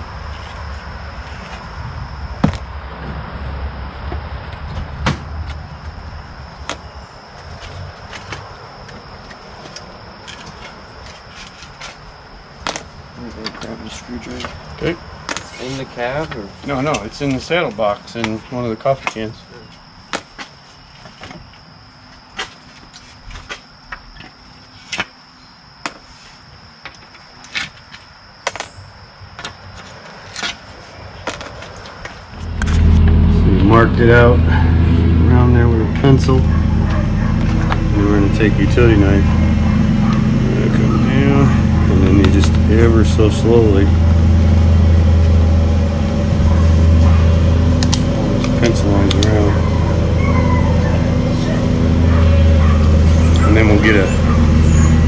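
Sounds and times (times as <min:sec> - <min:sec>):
steady low rumble: 0:00.0 - 0:11.2, 0:32.2 - 0:55.0.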